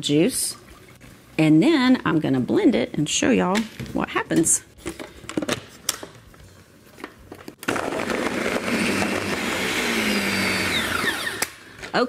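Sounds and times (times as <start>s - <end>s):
blender crushing frozen fruit: 7.6s - 11.8s.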